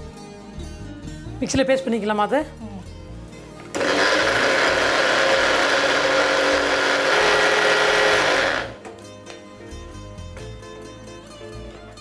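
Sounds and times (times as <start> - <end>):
mixer grinder running: 3.7 - 8.8.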